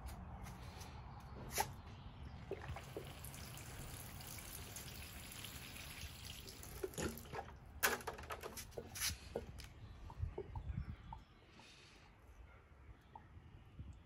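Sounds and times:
water pouring from watering can: 2.5 - 7.6.

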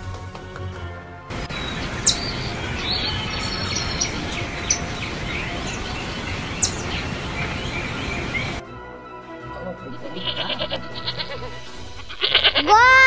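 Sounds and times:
birds chirping and calling: 1.3 - 8.6, 10.0 - 12.6.

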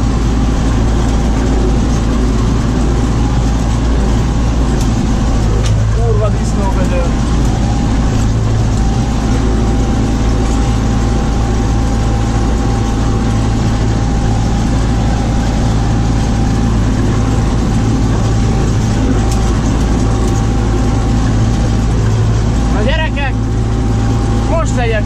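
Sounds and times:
high whine: 0.0 - 25.0
tractor engine running under load: 0.0 - 25.0.

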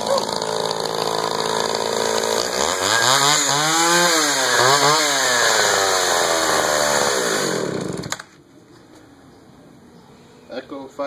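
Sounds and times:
chainsaw engine revving: 0.0 - 8.3.

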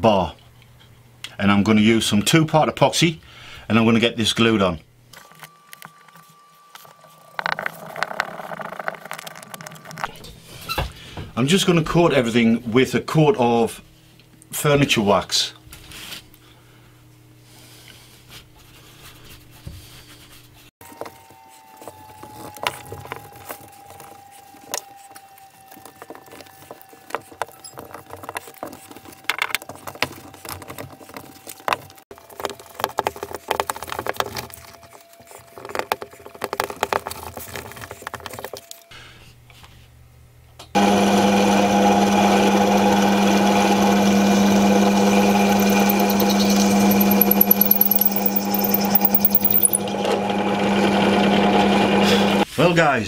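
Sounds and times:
drill press motor humming: 40.8 - 52.4.

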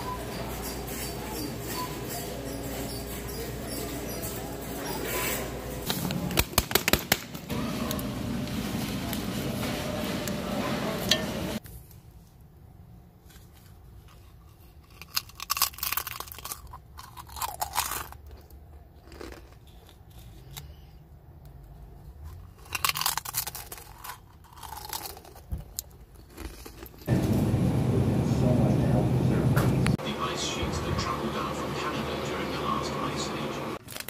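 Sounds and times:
shop background din: 0.0 - 11.7
crisp crunching: 13.5 - 20.7, 22.2 - 27.1, 33.8 - 34.0
quiet chewing: 14.0 - 27.1.

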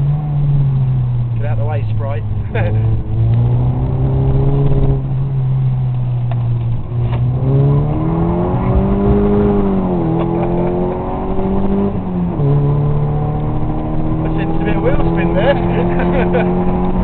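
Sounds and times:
car engine from inside cabin: 0.0 - 17.0.

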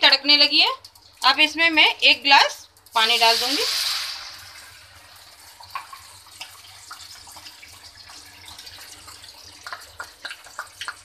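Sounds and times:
oil sizzling in a pan: 0.1 - 11.0
small pops and crackles: 9.6 - 11.0.

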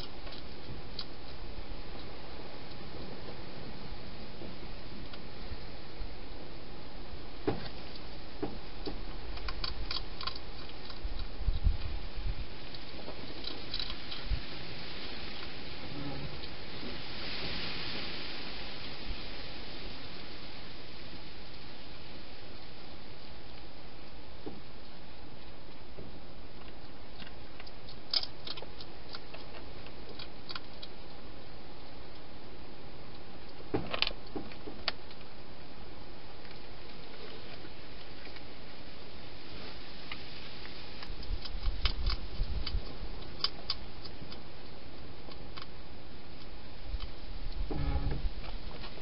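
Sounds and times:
hedgehog crunching food: 0.0 - 3.7, 8.8 - 17.0, 22.5 - 35.4, 36.1 - 47.6
steady hiss: 0.0 - 49.0
hedgehog chewing clicks: 8.8 - 11.9, 12.7 - 14.3, 26.6 - 32.3, 41.0 - 47.2.

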